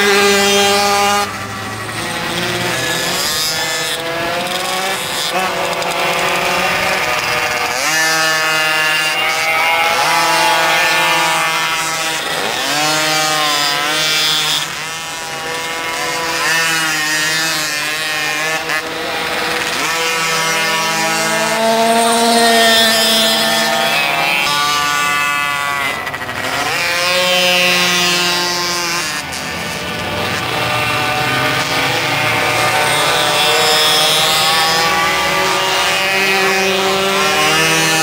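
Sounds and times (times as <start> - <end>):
small two-stroke engines buzzing: 0.0 - 38.0.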